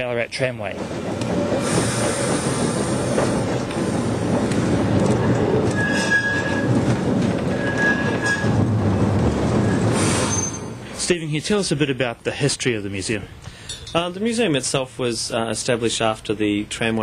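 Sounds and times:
tram rumbling along track: 0.0 - 16.8
high wheel squeals: 5.5 - 8.7, 9.6 - 11.0.

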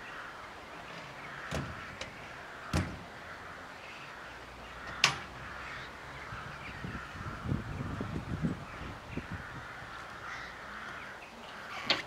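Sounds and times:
metal door knocks and clanks: 1.4 - 3.1.

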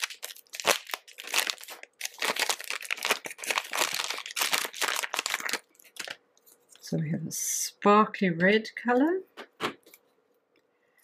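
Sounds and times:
plastic wrapping crinkling: 0.0 - 6.8.

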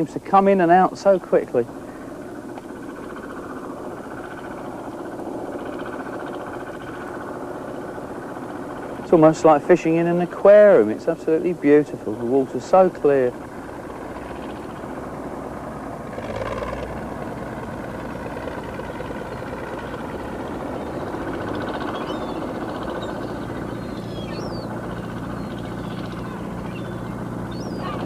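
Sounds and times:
low engine drone: 0.0 - 28.0
faint high chirps: 21.9 - 28.0.

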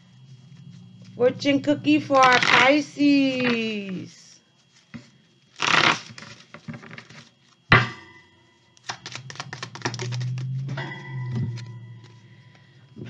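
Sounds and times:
cards rustling: 8.7 - 10.8.

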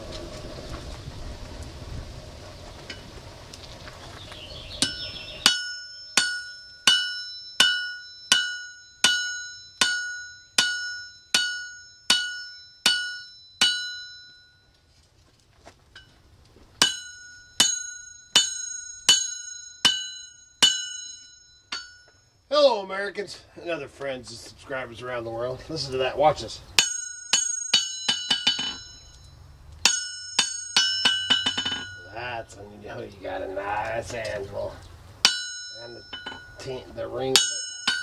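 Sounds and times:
steady rushing noise: 0.0 - 5.6
hammer ringing on anvil: 4.8 - 14.6, 16.8 - 22.3, 26.8 - 32.1, 35.2 - 38.0.

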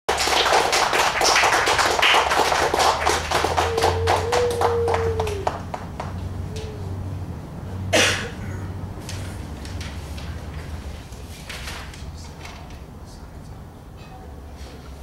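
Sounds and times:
audience clapping: 0.1 - 6.7.

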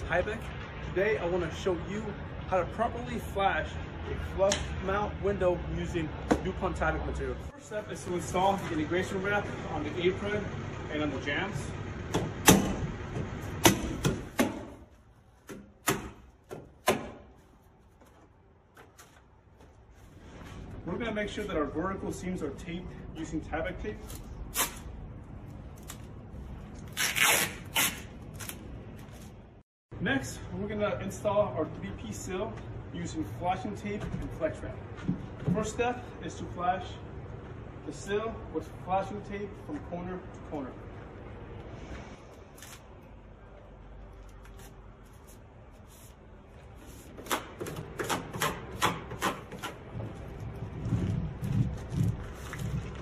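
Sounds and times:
hand roller rubbing on tape: 26.9 - 28.1.

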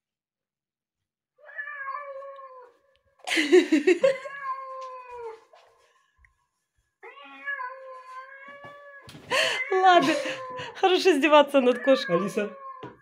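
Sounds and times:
cat meows from a speaker: 1.4 - 2.7, 7.0 - 10.6, 11.7 - 13.0.

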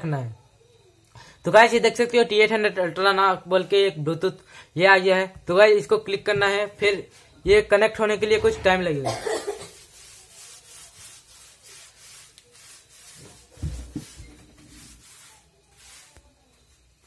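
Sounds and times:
faint rubbing and rustling: 6.2 - 17.0
dull low thump: 8.2 - 9.2.

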